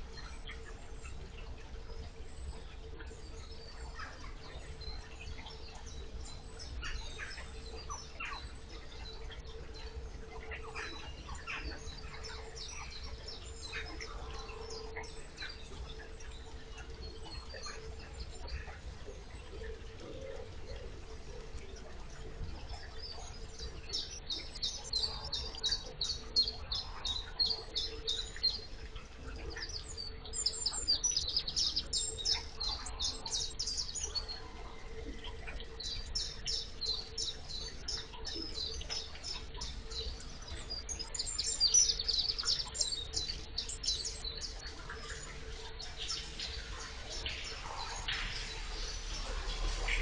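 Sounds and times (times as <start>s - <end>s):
faint steady hum: 0.0s - 50.0s.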